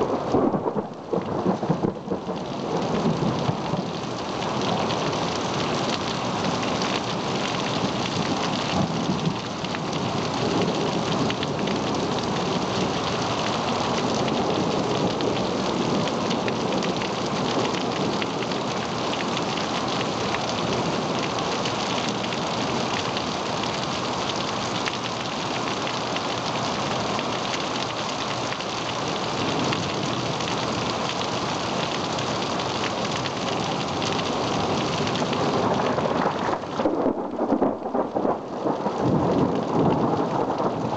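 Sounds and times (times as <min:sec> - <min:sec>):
rolling thunder rumbling: 0:00.0 - 0:04.0, 0:34.7 - 0:40.9
steady rain hissing: 0:00.0 - 0:40.9.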